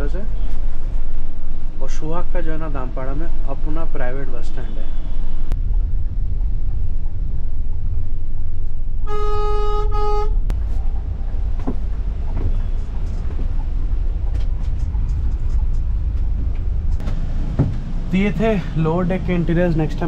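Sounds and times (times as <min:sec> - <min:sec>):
bus engine rumble: 0:00.0 - 0:20.0
vehicle horn honking: 0:09.0 - 0:10.4.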